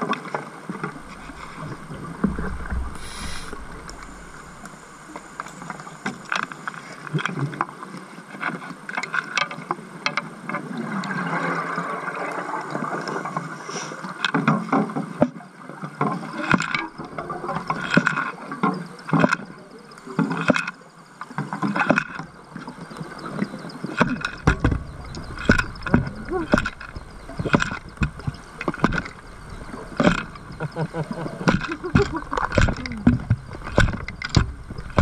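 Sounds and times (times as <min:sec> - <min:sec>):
rushing water noise: 0:00.0 - 0:35.0
underwater hammering knocks: 0:00.8 - 0:06.3, 0:24.0 - 0:35.0.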